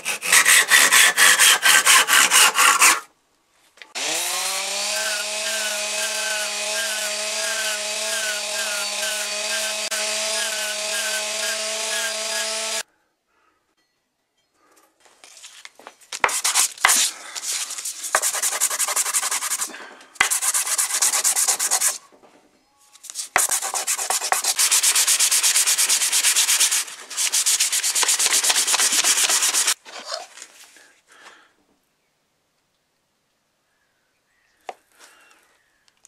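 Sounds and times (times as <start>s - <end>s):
wood scrubbed on sandpaper: 0.0s - 3.0s, 4.0s - 12.8s, 16.2s - 22.0s, 23.0s - 30.3s.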